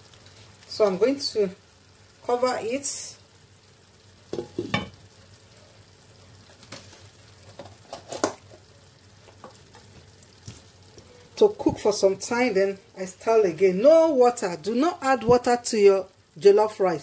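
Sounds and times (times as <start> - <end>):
rice sizzling in sauce: 0.0 - 17.0
glass lid clinking on pan: 4.4 - 5.0.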